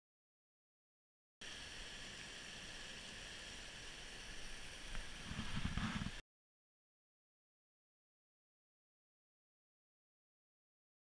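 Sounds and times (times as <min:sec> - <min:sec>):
stream water rushing over drop: 0:01.4 - 0:06.2.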